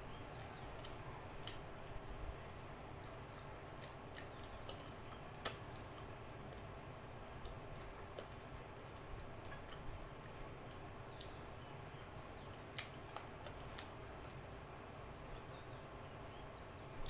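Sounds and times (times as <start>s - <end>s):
steady low hum: 0.0s - 17.0s
wet eating clicks and smacks: 0.2s - 14.4s
chewing: 0.3s - 11.8s, 12.4s - 14.4s.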